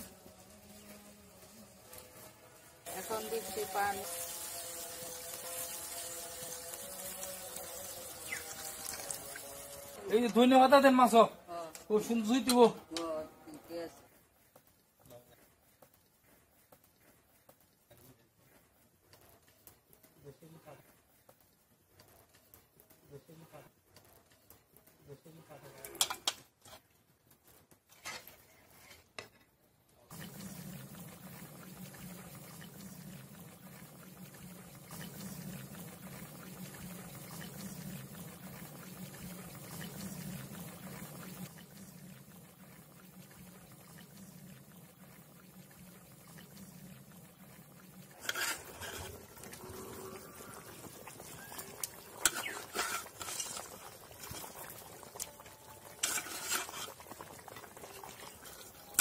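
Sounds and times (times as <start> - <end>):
curry bubbling in a pan: 0.0 - 59.0.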